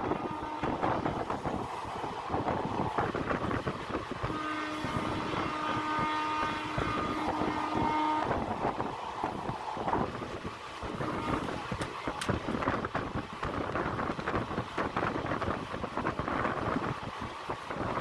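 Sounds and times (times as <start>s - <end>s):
locomotive horn blast: 0.0s - 1.2s, 4.2s - 8.8s, 10.9s - 11.8s
train wheels rumbling on rails: 0.0s - 18.0s.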